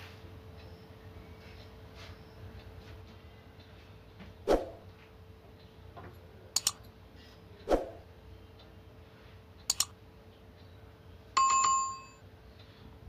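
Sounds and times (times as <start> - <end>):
laptop touchpad clicks: 6.6 - 6.8, 9.7 - 9.9
bright ringing chime: 11.4 - 12.2.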